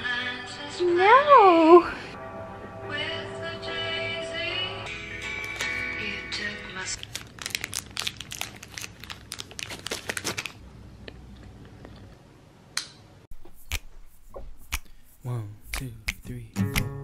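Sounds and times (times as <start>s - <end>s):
wrapper rustles and clicks: 6.9s - 10.6s
plastic wrapper crinkling and tearing: 7.0s - 10.6s.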